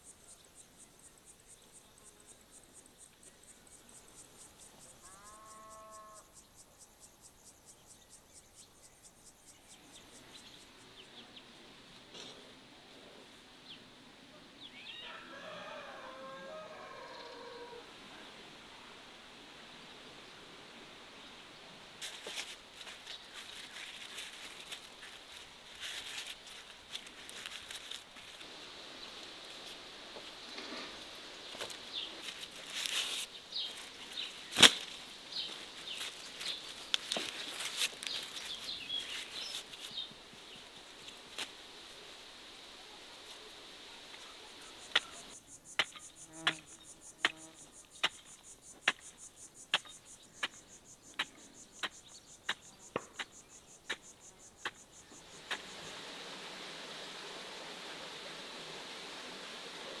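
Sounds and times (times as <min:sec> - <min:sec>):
insects buzzing: 0:00.0 - 1:00.0
soft hiss: 0:16.7 - 1:00.0.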